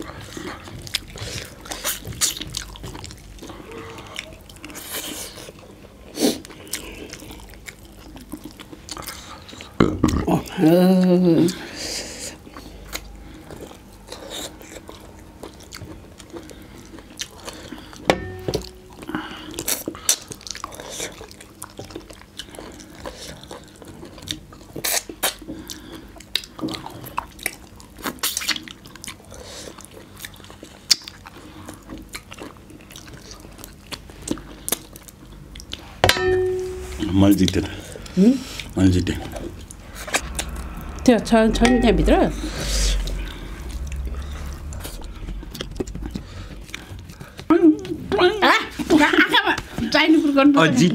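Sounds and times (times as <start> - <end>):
people gnawing and sucking bones: 0.0 - 18.1, 19.1 - 36.0.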